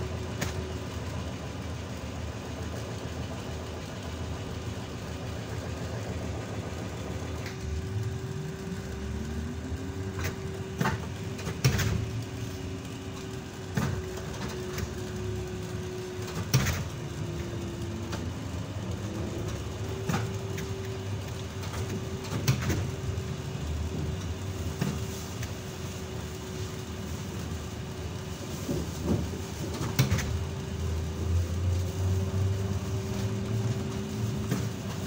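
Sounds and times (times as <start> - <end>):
bus rumbling over road: 0.0 - 35.0
motor whine: 5.3 - 24.4.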